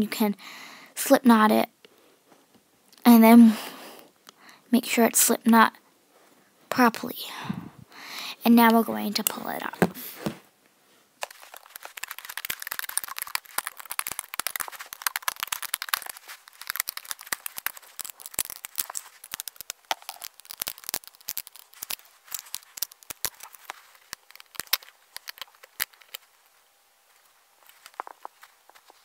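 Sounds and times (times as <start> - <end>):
rubber bands snapping off pegs: 11.8 - 26.2.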